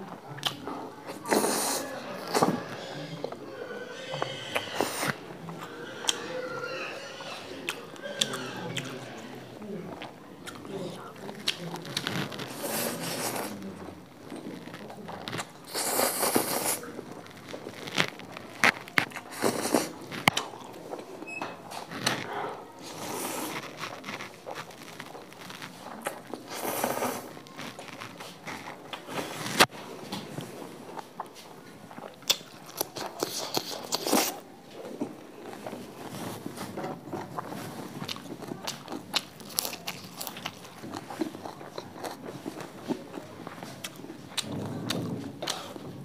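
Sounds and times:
chewing: 0.1 - 46.0
crunching lettuce: 0.4 - 21.1, 21.7 - 29.7, 30.9 - 46.0
slurping noodles: 1.1 - 2.9, 3.8 - 9.3, 11.9 - 20.6, 22.8 - 29.7.

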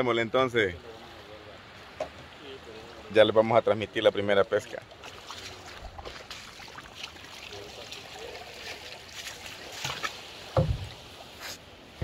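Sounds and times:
water lapping around boat hull: 3.7 - 12.0
low thump: 10.6 - 11.0.

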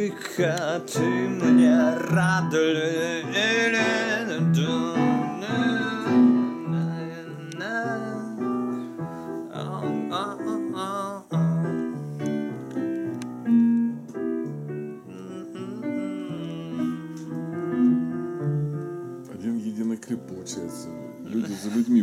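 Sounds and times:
person singing: 0.0 - 12.0, 14.9 - 17.4
piano-led song: 0.0 - 22.0.

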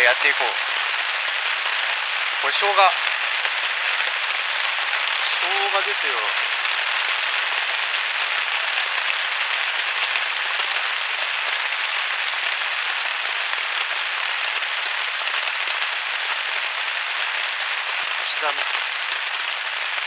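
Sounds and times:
heavy rain on plastic tarp: 0.0 - 20.0.

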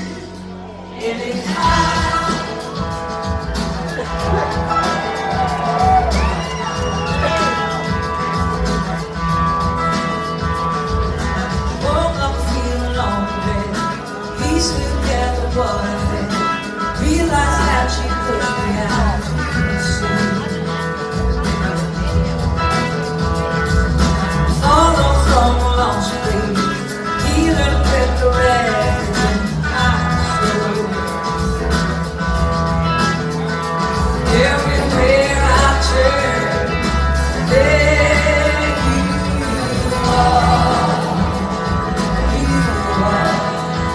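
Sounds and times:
woman singing lead vocal: 0.0 - 3.0, 11.8 - 20.7, 24.6 - 31.4, 34.2 - 43.9
blues-rock band playing: 0.0 - 43.9.

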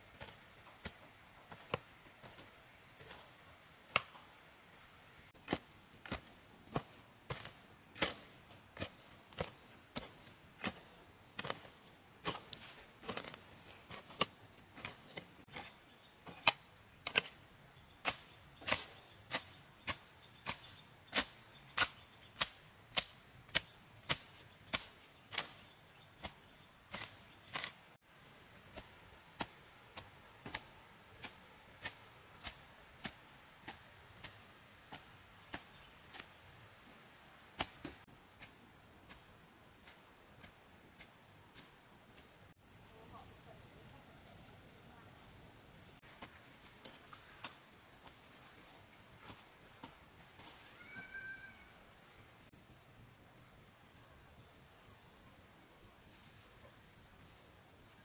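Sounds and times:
hand tool chopping wood: 11.4 - 15.7, 18.1 - 25.6
insects trilling: 50.4 - 53.2.

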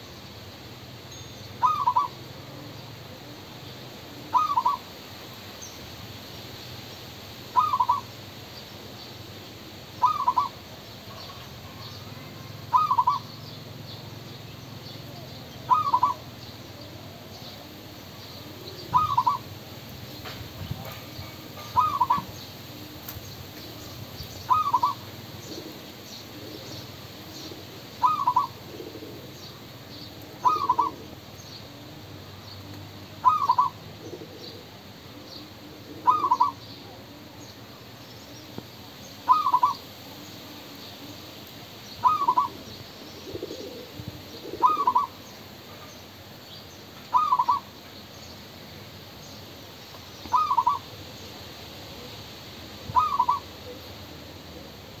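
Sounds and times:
dove cooing: 1.6 - 5.0, 7.5 - 8.1, 9.9 - 13.4, 15.0 - 37.4, 39.2 - 41.2, 42.0 - 45.9, 47.1 - 47.7, 50.2 - 51.0, 52.8 - 55.0.

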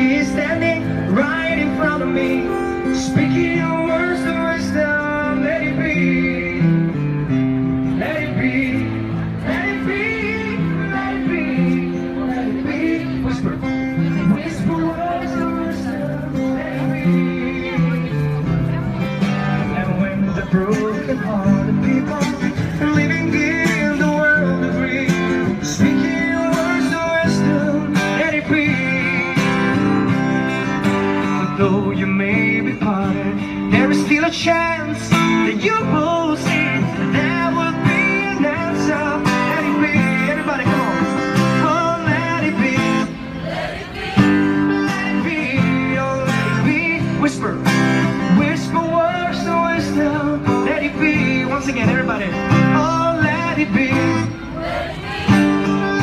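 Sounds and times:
acoustic guitar chords: 0.0 - 56.0
wordless vocal melody: 31.6 - 51.7.

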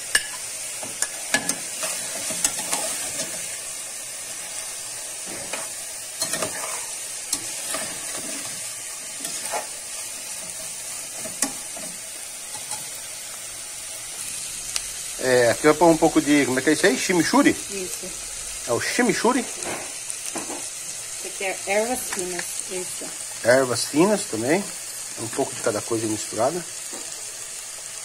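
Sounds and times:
sausage sizzling in a pan: 0.0 - 28.0
metal spoon scraping a pan: 0.1 - 3.6, 4.3 - 13.0.

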